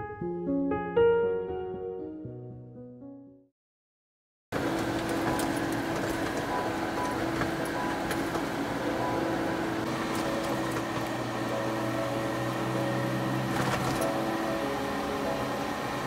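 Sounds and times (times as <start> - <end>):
soft sustained background music: 4.8 - 16.0.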